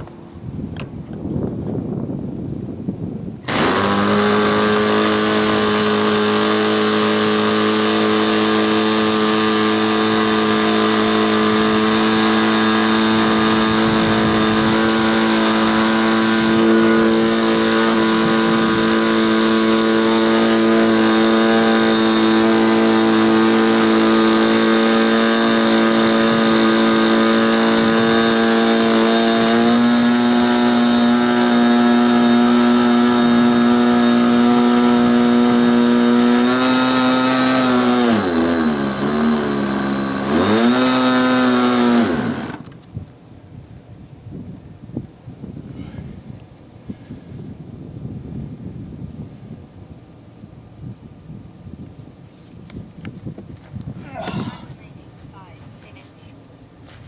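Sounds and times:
model airplane engine droning: 3.4s - 43.0s
electric starter: 3.4s - 43.1s.

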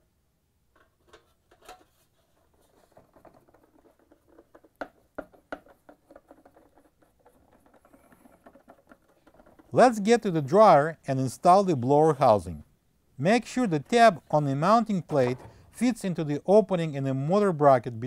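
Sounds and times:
clicks and scraping: 0.7s - 10.4s.

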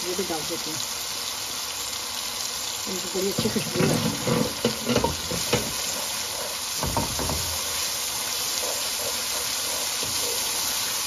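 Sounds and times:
sauce sizzling in hot oil: 0.0s - 11.0s
wooden spoon scraping a wok: 3.3s - 11.0s
spoon knocking: 3.8s - 5.9s, 6.8s - 7.6s.

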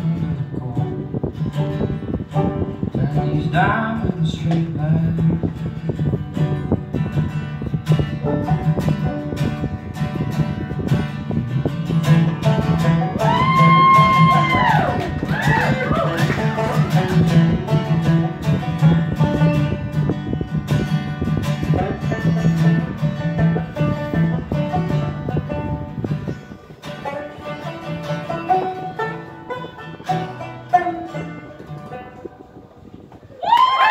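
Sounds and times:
banjo picking: 0.0s - 32.7s
acoustic guitar strumming: 0.0s - 33.2s.

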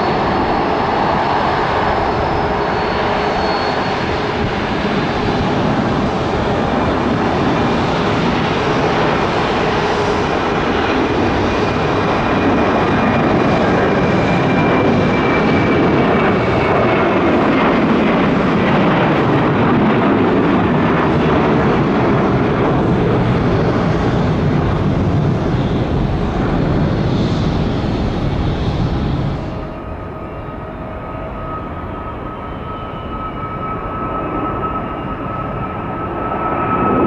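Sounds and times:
thin high jet whine: 0.0s - 19.4s
jet engines roaring: 0.0s - 37.0s.

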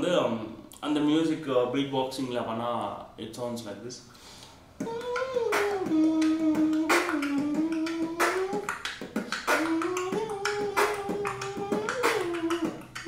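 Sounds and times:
beatboxing beats and clicks: 4.4s - 13.0s
hummed melody: 4.8s - 13.0s.

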